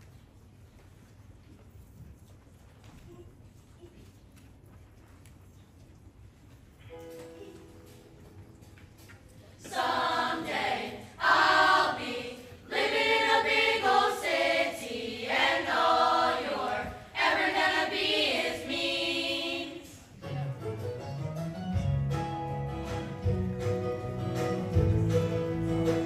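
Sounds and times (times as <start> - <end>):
chorus singing: 9.6 - 20.1.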